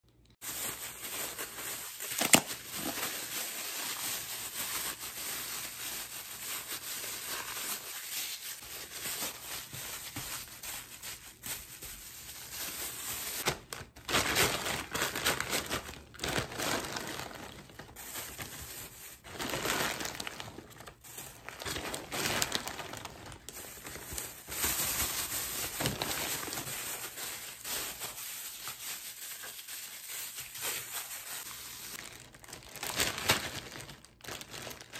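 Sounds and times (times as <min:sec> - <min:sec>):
food squashed inside plastic bag: 0:00.4 - 0:05.8
plastic bags crinkling: 0:00.4 - 0:34.9.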